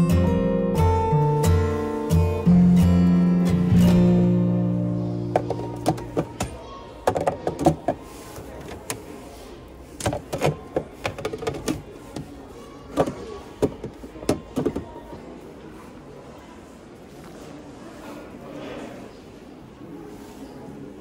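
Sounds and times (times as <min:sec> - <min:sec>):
plastic trays clattering: 0:05.3 - 0:09.2, 0:09.9 - 0:15.1.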